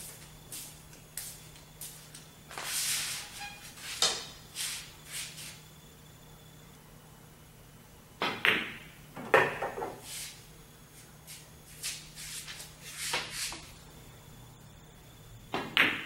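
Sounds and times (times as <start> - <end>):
pool balls rolling and knocking: 8.2 - 10.1, 15.6 - 16.0.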